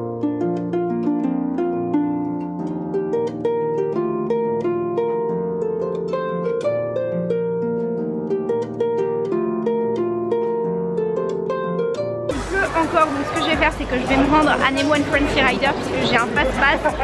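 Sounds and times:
plucked harp-like melody: 0.0s - 17.0s.

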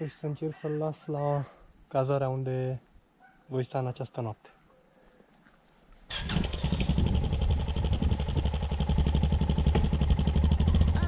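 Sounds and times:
motorcycle engine running: 6.1s - 11.0s.

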